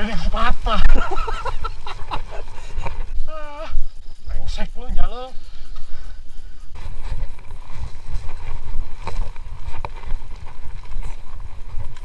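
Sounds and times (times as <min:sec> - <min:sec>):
wind on microphone: 0:00.0 - 0:12.0
bike jolting over ground: 0:06.8 - 0:12.0.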